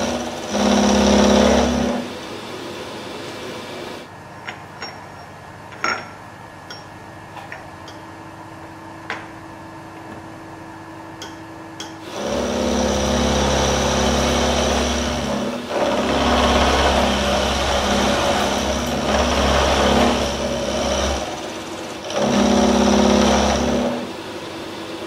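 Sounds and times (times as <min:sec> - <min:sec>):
milling machine cutting metal: 0:00.0 - 0:02.2, 0:12.0 - 0:24.2.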